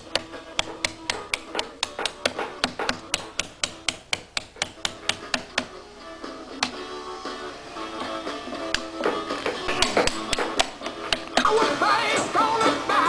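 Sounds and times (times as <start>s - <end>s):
hammer striking metal plates: 0.0s - 5.7s, 8.6s - 11.8s.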